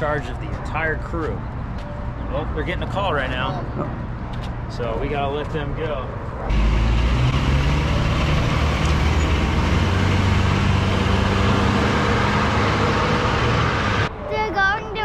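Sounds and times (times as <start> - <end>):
fire engine running loudly: 6.5 - 14.1.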